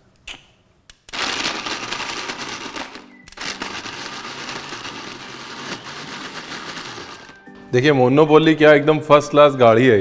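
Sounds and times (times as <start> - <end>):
blender crushing ice: 1.1 - 7.5.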